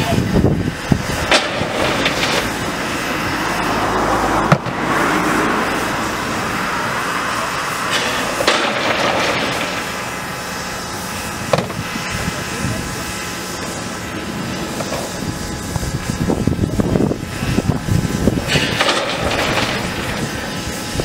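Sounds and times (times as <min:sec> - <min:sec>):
steam hissing: 0:00.0 - 0:21.0
coal rattling from buckets: 0:01.2 - 0:02.8, 0:07.9 - 0:10.1, 0:18.4 - 0:20.6.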